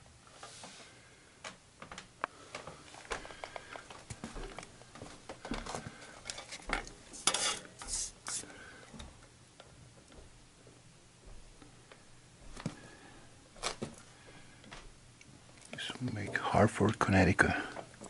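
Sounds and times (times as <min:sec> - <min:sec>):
rubbing scrapes: 0:07.1 - 0:08.4.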